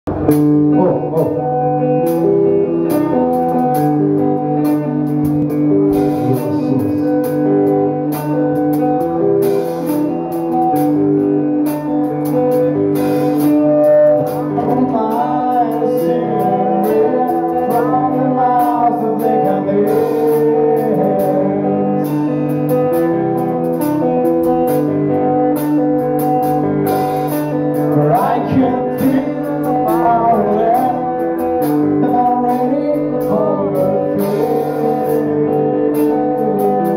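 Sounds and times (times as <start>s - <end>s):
electric guitar picking: 0.1s - 36.9s
male singer: 6.0s - 7.3s, 14.0s - 22.4s, 27.9s - 35.6s.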